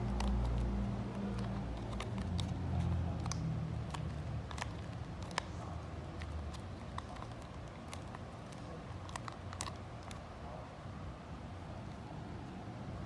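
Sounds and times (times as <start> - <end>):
plastic parts clicking and tapping: 0.0 - 5.6, 6.2 - 10.2.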